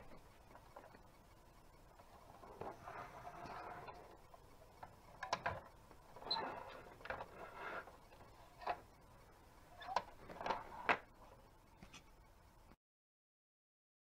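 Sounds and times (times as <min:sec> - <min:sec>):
plastic rattling: 0:01.9 - 0:08.9, 0:09.8 - 0:11.2.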